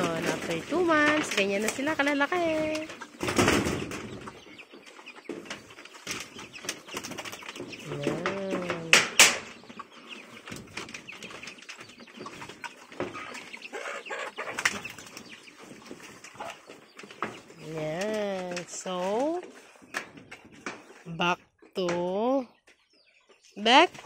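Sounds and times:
piglets eating from feed pan: 2.4 - 17.6.

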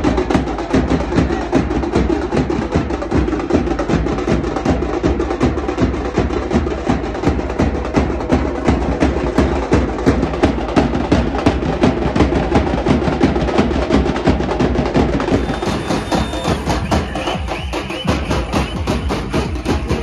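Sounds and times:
drums beaten in fast rhythm: 0.0 - 20.0.

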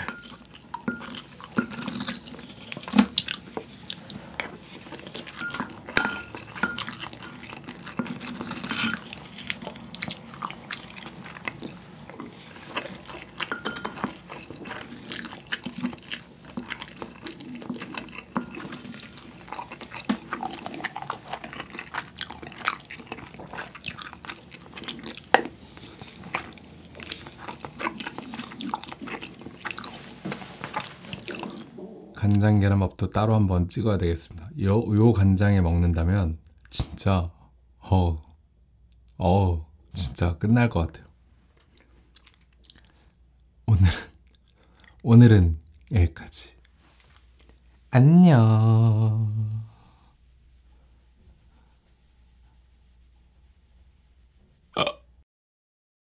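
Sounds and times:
spoon scraping ceramic bowl: 0.0 - 2.9, 4.5 - 9.2, 12.3 - 15.4, 17.8 - 21.2
wet chewing and mouth smacks: 0.0 - 31.8, 41.4 - 43.5, 44.1 - 45.0, 45.6 - 45.9, 46.6 - 47.7.

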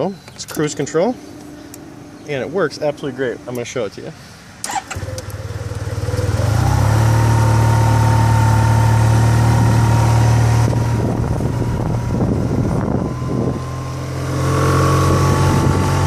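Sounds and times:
motorcycle engine: 4.6 - 16.0.

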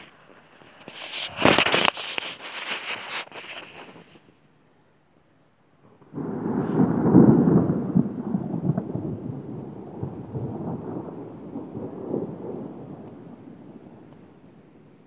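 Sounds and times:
thunder rumbling: 5.8 - 15.0.

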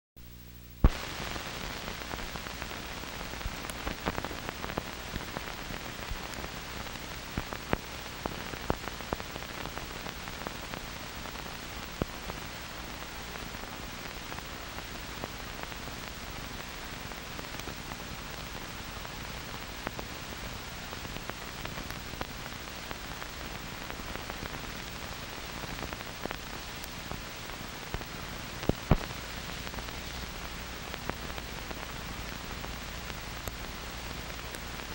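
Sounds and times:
film soundtrack hiss and crackle: 0.2 - 34.9
pops and clicks: 0.8 - 1.2, 27.9 - 31.5.

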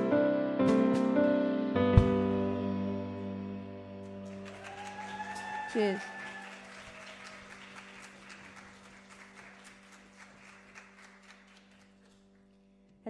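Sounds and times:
audience applauding: 4.2 - 12.6.

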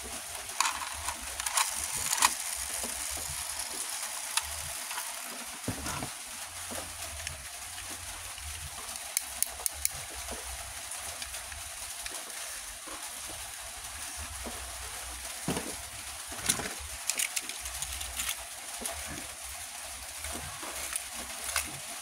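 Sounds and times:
steady hiss: 0.0 - 22.0
toy trucks clicking in plastic bowl: 0.4 - 5.6, 8.9 - 10.0, 16.4 - 19.0.

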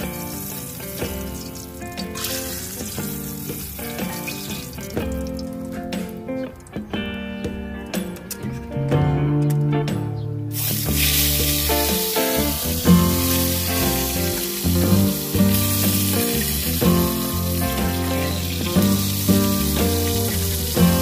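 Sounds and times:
slices sizzling in hot oil: 0.0 - 5.6, 10.5 - 21.0
background music: 0.0 - 21.0.

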